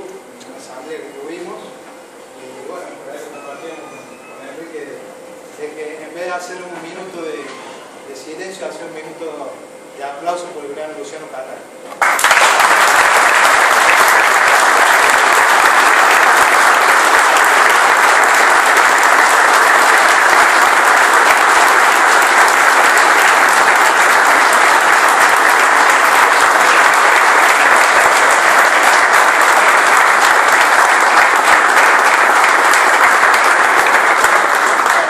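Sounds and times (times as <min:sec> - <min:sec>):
crowd applauding: 0:12.0 - 0:35.0.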